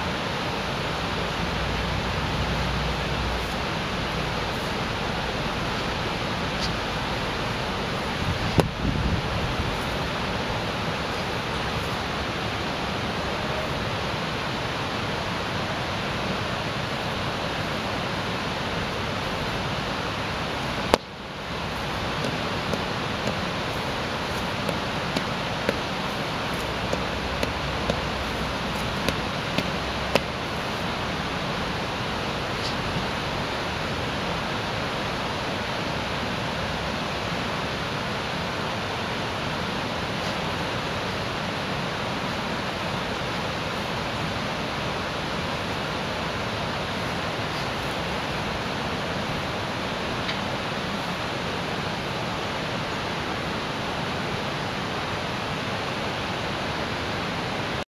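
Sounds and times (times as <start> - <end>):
steady rushing noise: 0.0 - 57.8.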